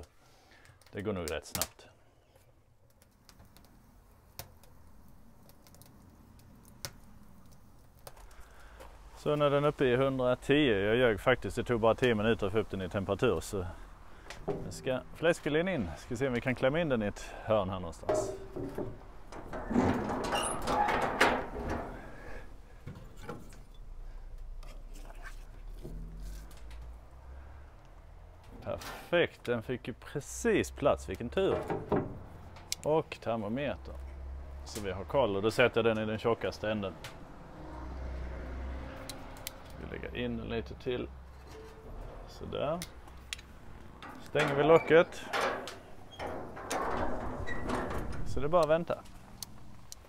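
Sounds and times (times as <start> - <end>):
wood fire crackling: 0.0 - 50.0
heavy steel lid opening: 14.2 - 15.3, 18.0 - 23.7, 31.5 - 32.8, 41.3 - 50.0
metallic knocks: 14.2 - 15.8, 18.0 - 22.4, 31.4 - 32.8, 41.3 - 49.4.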